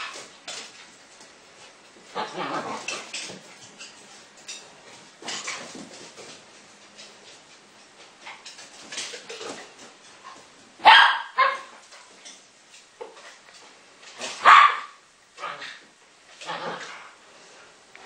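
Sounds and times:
dogs barking: 10.8 - 11.7, 14.3 - 15.8.

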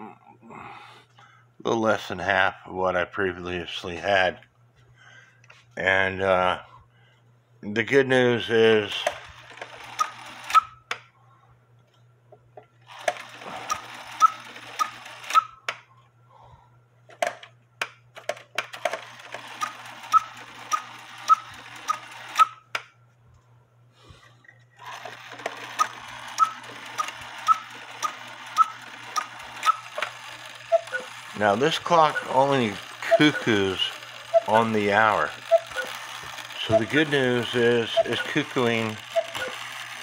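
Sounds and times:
clock mechanism whirring rattle: 8.4 - 11.0, 12.8 - 15.8, 18.2 - 22.8, 24.7 - 40.0.

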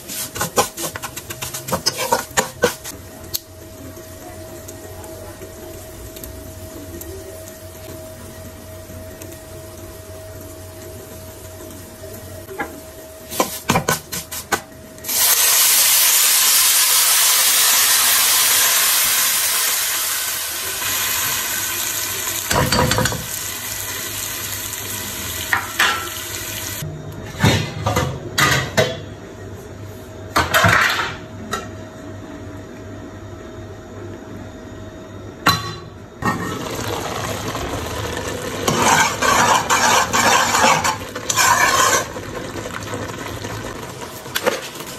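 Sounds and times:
spoon scraping a pan: 0.0 - 2.9, 38.7 - 42.2
utensils clinking on a pan: 0.3 - 2.9, 38.6 - 42.1
water sizzling in a hot pan: 13.2 - 26.8, 36.2 - 44.9.

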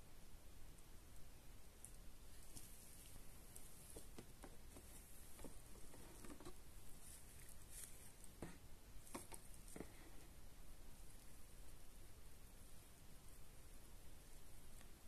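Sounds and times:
light knocks and rustles: 2.4 - 10.2.

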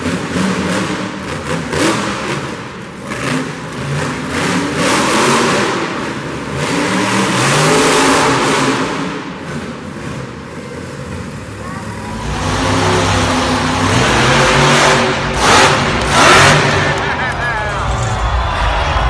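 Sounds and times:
monster truck engine revving: 0.0 - 19.0.

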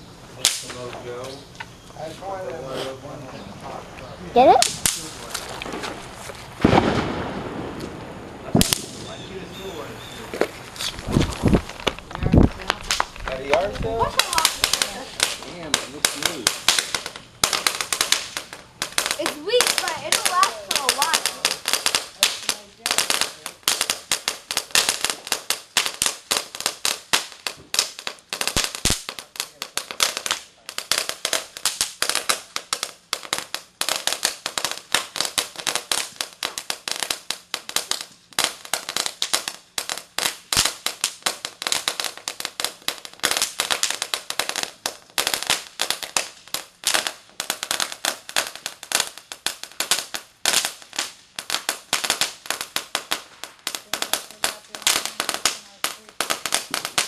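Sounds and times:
ground firework crackling: 0.0 - 57.0.

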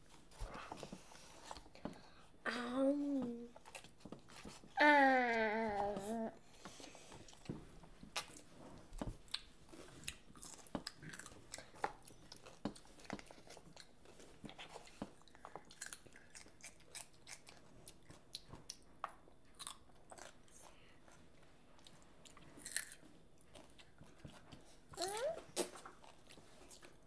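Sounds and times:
children chewing crunchy food: 3.5 - 27.0.

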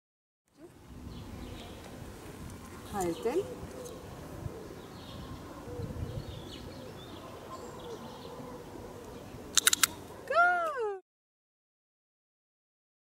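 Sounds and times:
quick sharp clicks: 9.5 - 10.1.

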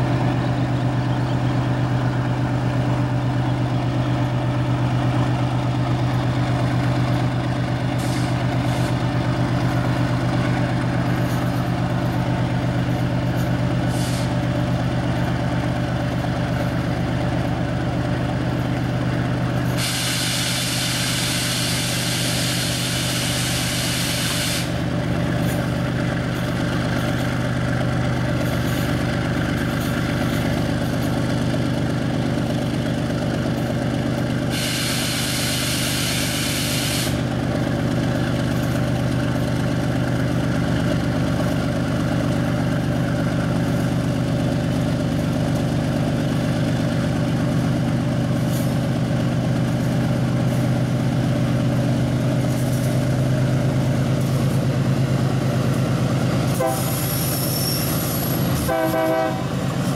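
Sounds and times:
diesel locomotive engine running: 0.0 - 59.9
brake air hiss: 6.7 - 11.7, 13.4 - 14.5, 19.6 - 25.7, 34.4 - 37.4, 56.5 - 59.9.

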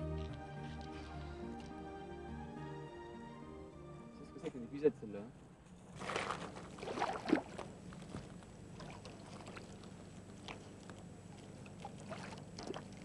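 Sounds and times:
fish splashing at the surface: 6.0 - 7.8, 8.8 - 13.0
faint water lapping: 6.0 - 13.0.

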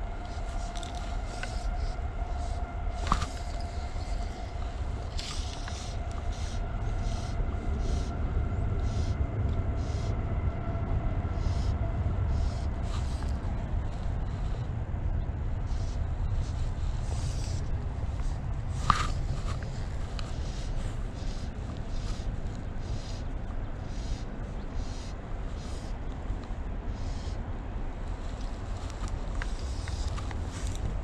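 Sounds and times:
faint steady whine: 0.0 - 31.0
low steady rumble: 0.0 - 31.0.

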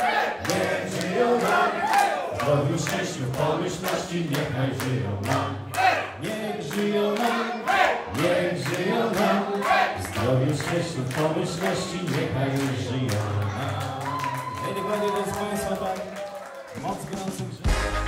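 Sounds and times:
voices singing over a beat: 0.0 - 14.2.

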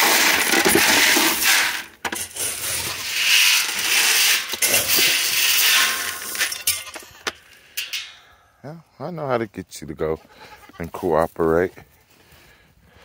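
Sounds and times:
metal lids scraping and rattling: 0.0 - 8.4.

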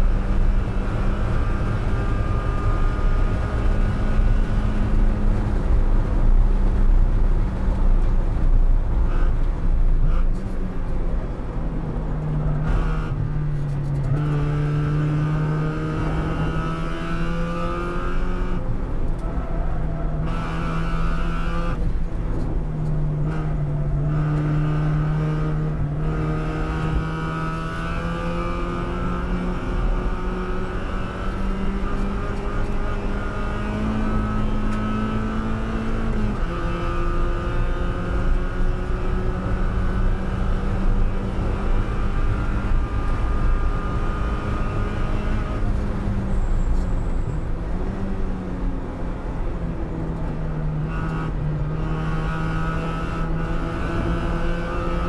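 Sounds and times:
car engine revving: 0.0 - 55.0.

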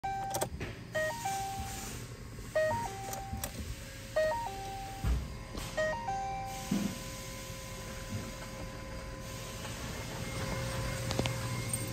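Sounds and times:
ignition key clicks: 0.0 - 1.2, 2.6 - 3.6
car warning chime jingle: 0.0 - 1.7, 2.6 - 3.5, 4.2 - 5.0, 5.8 - 6.6.

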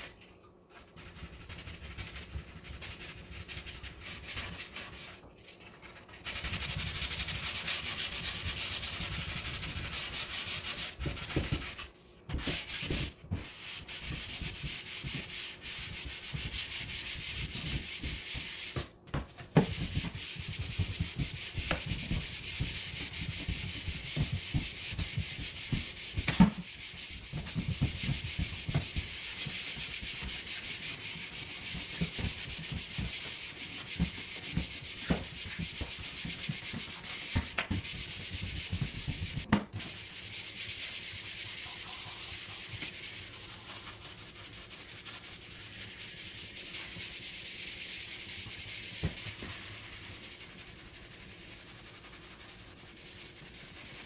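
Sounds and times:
sandpaper rubbing on wood: 5.9 - 18.8, 19.7 - 54.0
sanding block knocking on wood: 6.2 - 54.0.

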